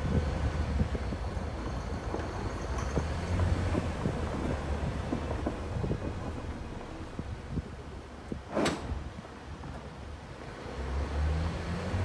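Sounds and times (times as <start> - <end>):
low rumble of tyres and engine: 0.0 - 12.0
knocks and rattles from bumps: 0.8 - 7.6.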